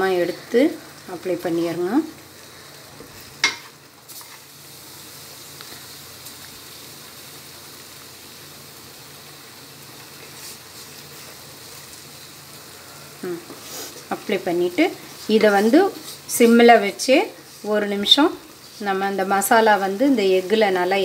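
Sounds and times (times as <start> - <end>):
masala sizzling in a pan: 0.0 - 21.0
spatula tapping a pan: 3.4 - 3.7.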